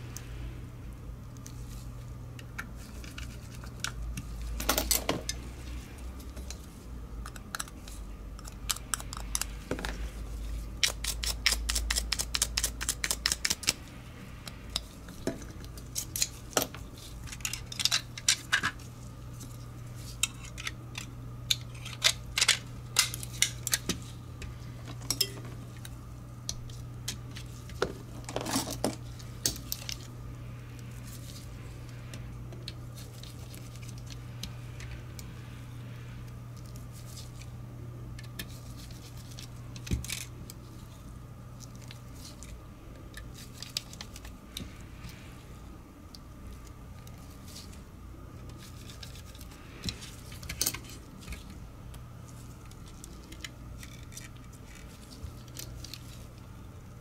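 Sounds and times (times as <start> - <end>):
steady low hum: 0.0 - 57.0.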